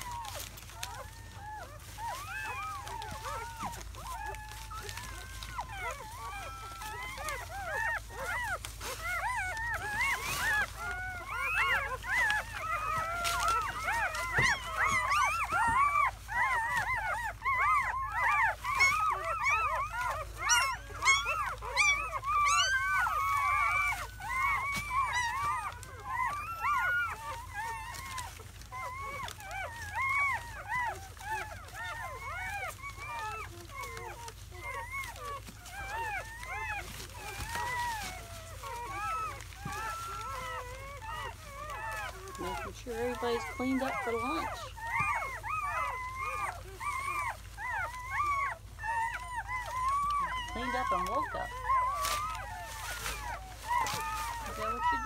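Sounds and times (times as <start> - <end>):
puppies squealing and whimpering: 0.0 - 55.0.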